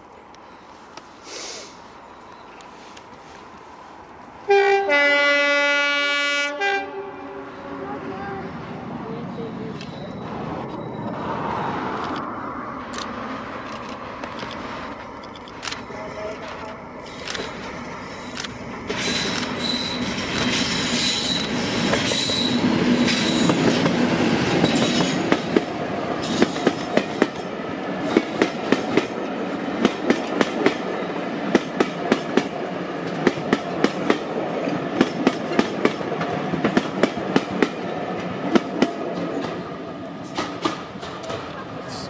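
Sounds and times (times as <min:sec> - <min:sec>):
train wheels clattering over rail joints: 0:16.4 - 0:30.9, 0:31.5 - 0:41.5.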